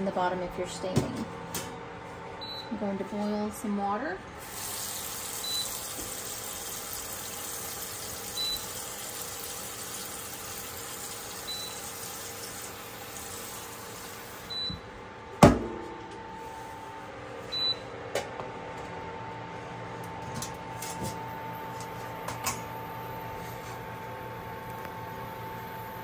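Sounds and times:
faucet filling pan with water: 4.4 - 14.4.

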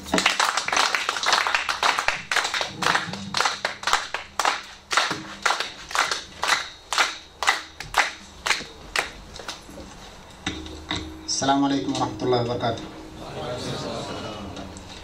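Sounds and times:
audience clapping in rhythm: 0.0 - 9.6.

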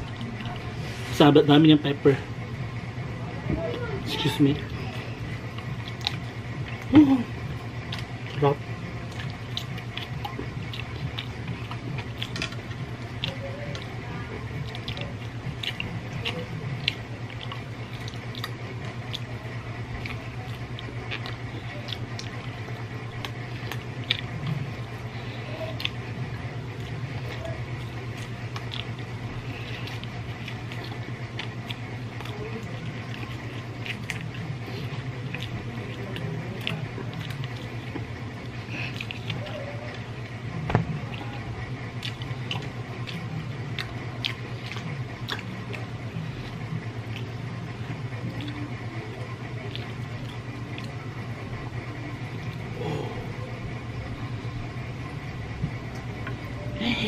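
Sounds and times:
person chewing food: 0.0 - 1.5, 4.2 - 57.0
steady low hum: 0.0 - 57.0
wet mouth clicks and lip smacks: 42.0 - 45.8.

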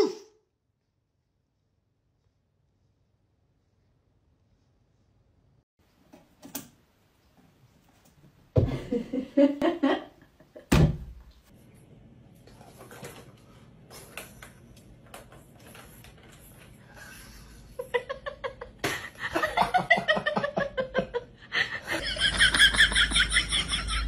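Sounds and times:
person laughing hard: 17.8 - 24.0.

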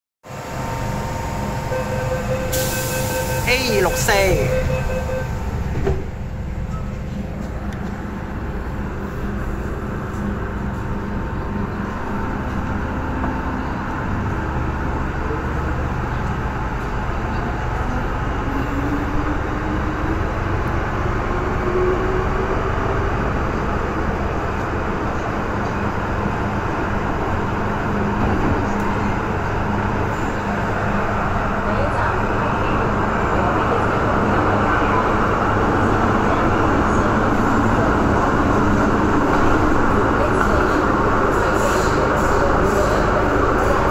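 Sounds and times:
train running and rail noise: 0.2 - 43.9.

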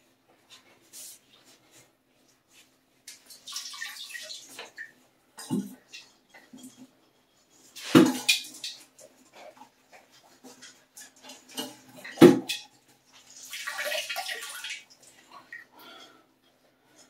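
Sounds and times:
water splashing and dripping: 2.5 - 6.9, 7.5 - 15.8.

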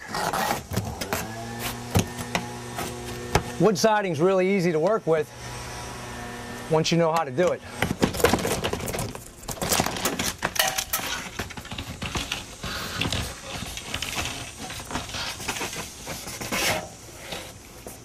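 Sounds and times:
wood boards knocking and clinking: 7.8 - 12.3.

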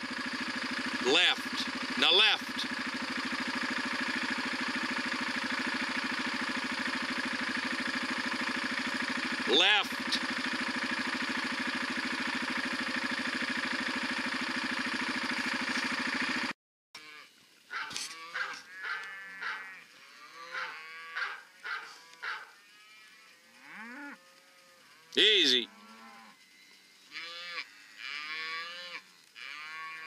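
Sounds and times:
engine running: 0.0 - 16.6
cattle mooing: 17.0 - 26.4, 27.1 - 30.0.

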